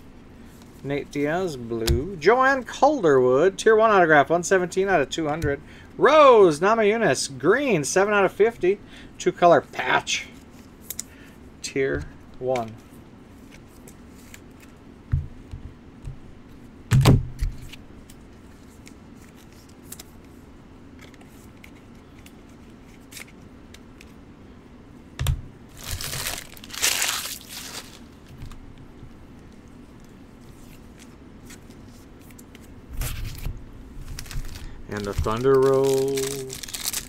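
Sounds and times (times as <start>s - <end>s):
wrapper crinkling and tearing: 25.7s - 28.2s, 34.0s - 37.0s.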